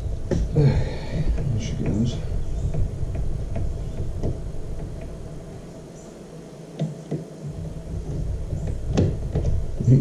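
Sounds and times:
screwdriver knocking on plastic: 1.3s - 5.1s, 7.9s - 9.9s.

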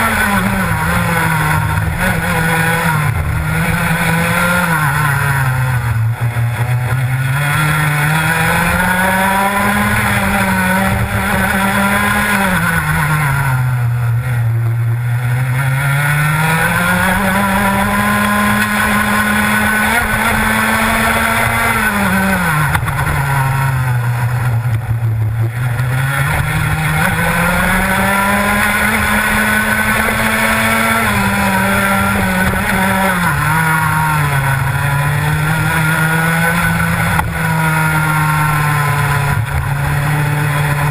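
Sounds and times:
kart engine at race pace: 0.0s - 40.9s.

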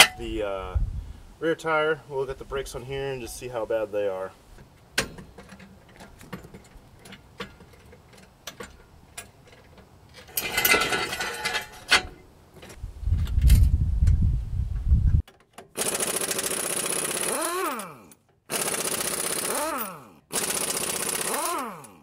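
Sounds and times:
clicks and knocks of tools: 4.6s - 12.8s, 15.2s - 15.8s
air impact wrench rattling: 10.3s - 12.1s, 15.3s - 22.0s.

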